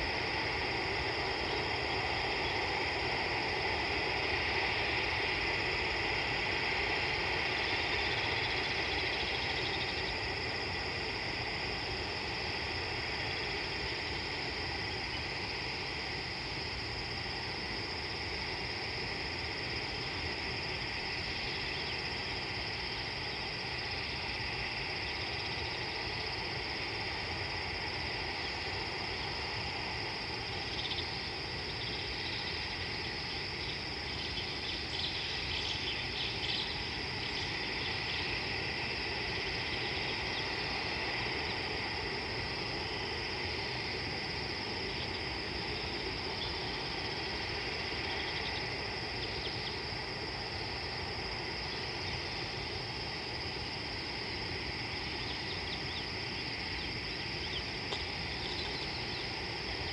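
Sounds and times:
crickets trilling: 0.0 - 59.9
short insect chirps: 19.6 - 59.9.

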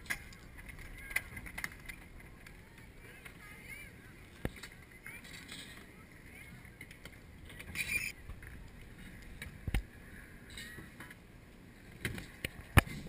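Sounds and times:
skateboard clacks on concrete: 0.0 - 3.8.

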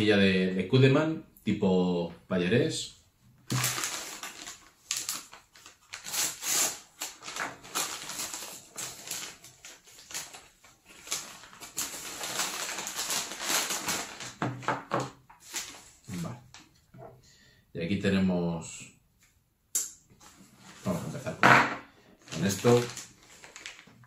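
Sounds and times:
padded paper mailer crinkling: 3.5 - 16.6, 22.2 - 24.0.

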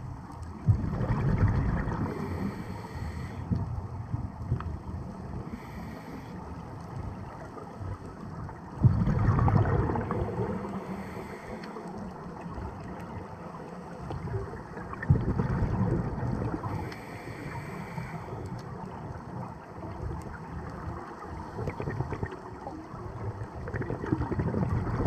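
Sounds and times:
exhaled bubbles underwater: 0.5 - 5.8, 7.0 - 25.0
regulator inhale hiss: 2.0 - 3.6, 5.4 - 6.7, 10.3 - 12.1, 16.6 - 18.6.

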